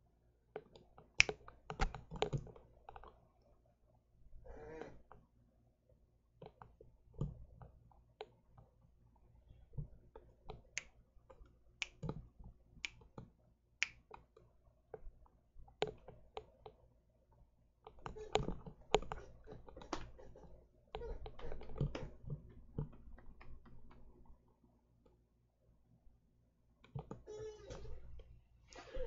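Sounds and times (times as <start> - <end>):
finger snaps: 1.2 - 2.0, 11.8 - 12.2, 12.8 - 13.1, 13.8 - 14.2.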